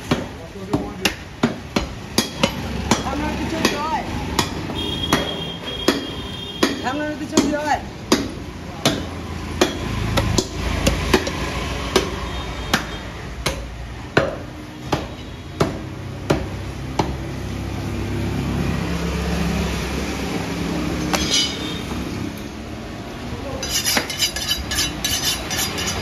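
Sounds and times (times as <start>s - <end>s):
cleaver chopping on wooden block: 0.0s - 17.2s
passing traffic engine rumble: 1.3s - 14.8s, 15.4s - 26.0s.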